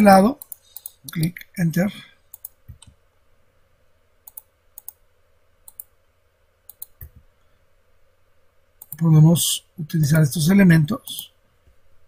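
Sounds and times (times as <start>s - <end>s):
mouse buttons clicking: 6.7s - 7.2s.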